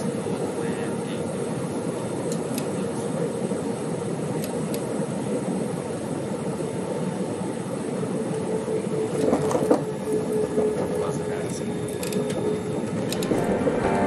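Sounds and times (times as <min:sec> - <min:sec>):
low hum: 0:13.2 - 0:14.0
vehicle rumble: 0:13.2 - 0:14.0.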